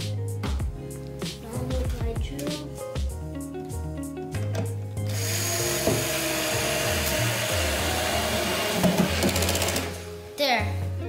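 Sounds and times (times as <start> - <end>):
electric screwdriver driving screw: 5.1 - 10.0.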